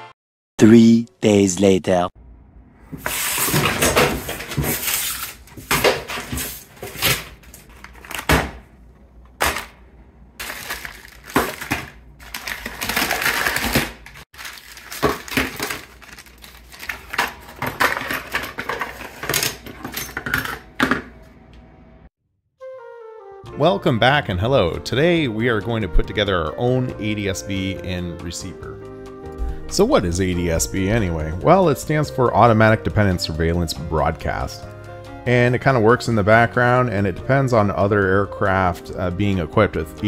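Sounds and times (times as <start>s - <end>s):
books and papers sliding: 3.0s - 8.3s
envelopes rustling and crinkling: 3.1s - 8.3s, 10.4s - 19.2s
plastic bags crackling: 4.7s - 8.3s, 10.4s - 17.6s.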